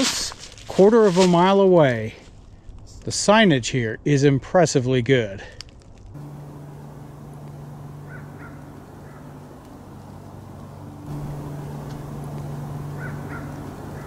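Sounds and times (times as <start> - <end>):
low mechanical hum: 5.8 - 14.0
faint short bird calls: 8.0 - 9.4, 12.8 - 14.0.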